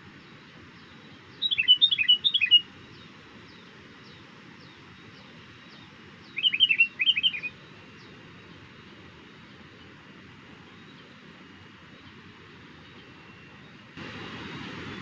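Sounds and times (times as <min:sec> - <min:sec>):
bulbul calling: 0:01.4 - 0:02.6, 0:06.4 - 0:07.5.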